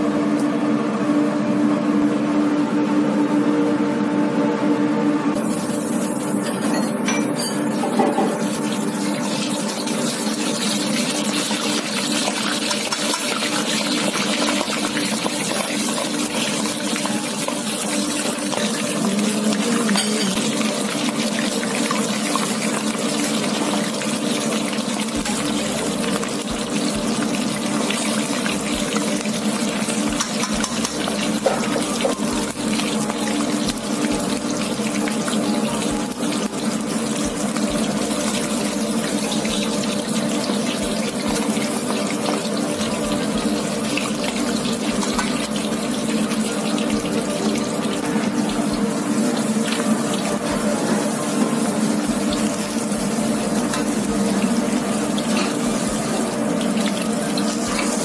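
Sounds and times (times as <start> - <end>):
steady hum: 0.0 - 58.0
oil sizzling with pops: 7.7 - 50.6.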